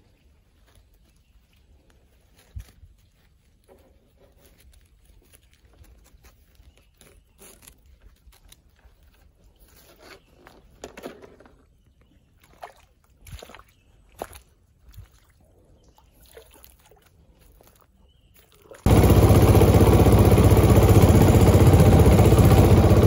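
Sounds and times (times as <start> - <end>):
footsteps in wet mud: 0.0 - 10.8, 11.9 - 18.9.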